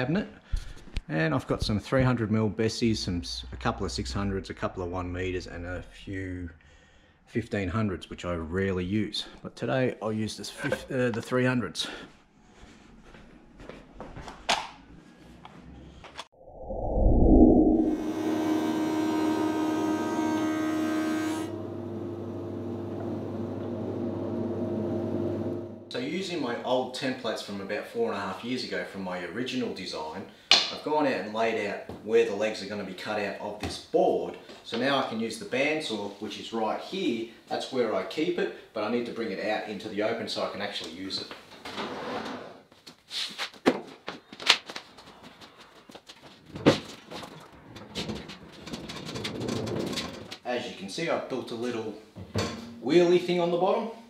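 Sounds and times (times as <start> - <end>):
planer motor drone: 17.7 - 25.9
machinery knocks and clunks: 52.2 - 52.8.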